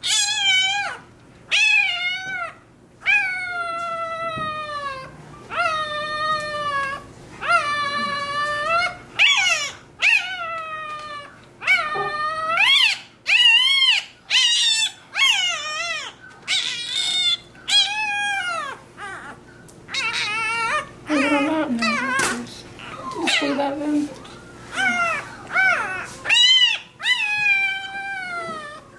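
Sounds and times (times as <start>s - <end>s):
puppy squealing: 0.0s - 28.9s.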